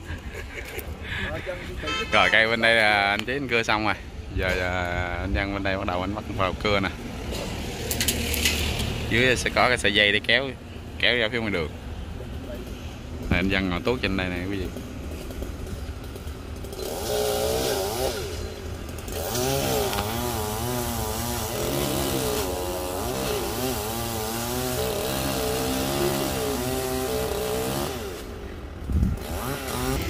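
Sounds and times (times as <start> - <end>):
chainsaw revving and cutting: 14.3 - 30.0.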